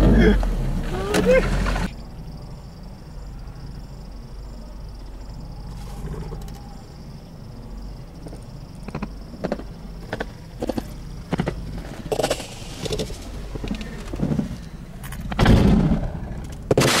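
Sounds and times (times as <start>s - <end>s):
car engine idling: 0.0s - 2.4s
sharp cracks and pops: 15.1s - 17.0s.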